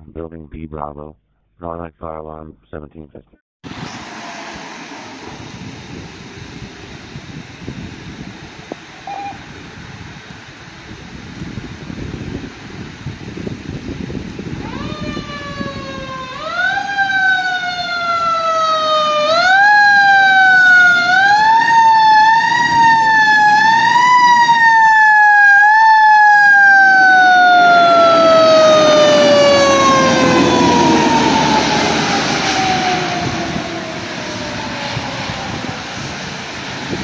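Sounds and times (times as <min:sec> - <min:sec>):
fire truck siren wailing: 0:14.4 - 0:37.0
diesel engine rumbling: 0:26.7 - 0:37.0.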